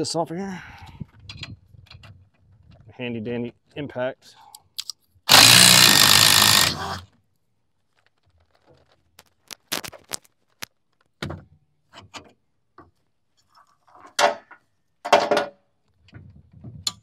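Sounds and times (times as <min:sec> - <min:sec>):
impact wrench running: 0:05.3 - 0:07.0.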